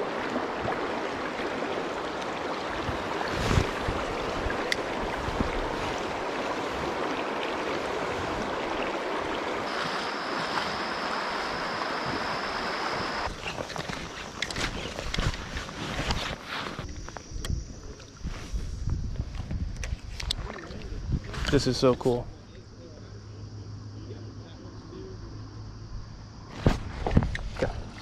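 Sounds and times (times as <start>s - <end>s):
river current flowing: 0.0s - 16.9s.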